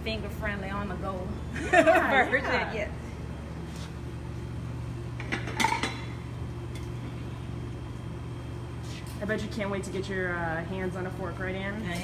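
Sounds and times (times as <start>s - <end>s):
steady low hum: 0.0s - 12.0s
plates and cutlery clinking: 5.2s - 6.1s.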